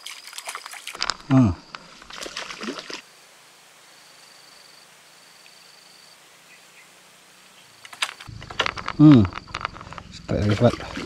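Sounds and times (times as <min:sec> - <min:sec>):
insect trilling: 0:00.2 - 0:03.0, 0:07.6 - 0:11.0.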